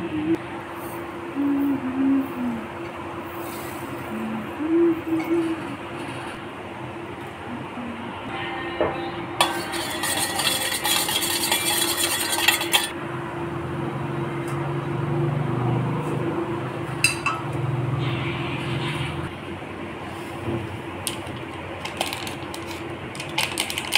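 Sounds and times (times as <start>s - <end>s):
spoon clinking against steel bowl: 9.4s - 13.0s, 17.0s - 17.4s.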